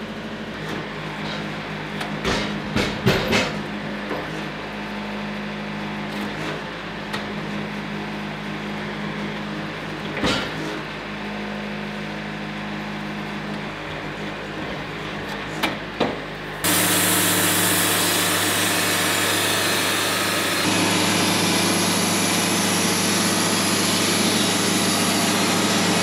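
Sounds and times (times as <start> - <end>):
sawmill engine running: 0.0 - 26.0
sawmill engine humming: 16.2 - 26.0.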